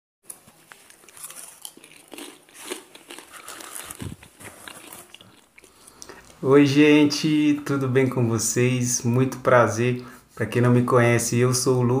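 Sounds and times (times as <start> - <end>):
chewing crunchy food: 0.3 - 6.4.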